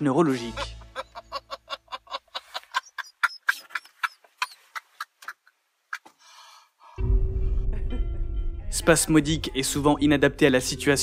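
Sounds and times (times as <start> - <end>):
man laughing uncontrollably: 0.4 - 6.1.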